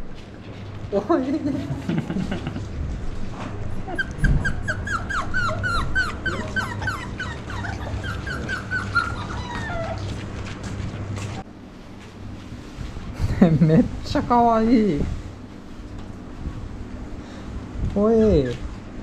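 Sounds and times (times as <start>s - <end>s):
puppies yelping: 3.8s - 10.6s.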